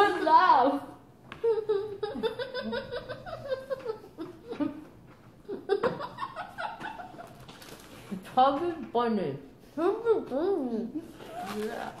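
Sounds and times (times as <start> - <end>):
woman laughing with mouth full: 1.4 - 7.4
boy laughing: 1.4 - 7.5.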